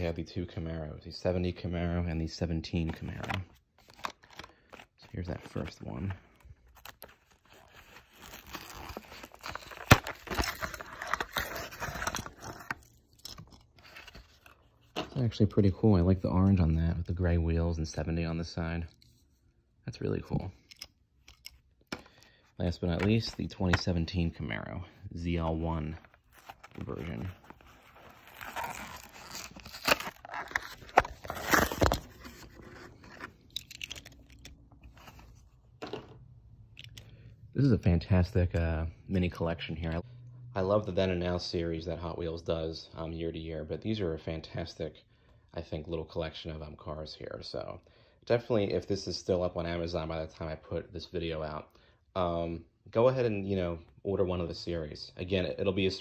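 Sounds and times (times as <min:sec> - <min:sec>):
plastic packaging tearing: 0:06.6 - 0:14.6, 0:26.1 - 0:34.5.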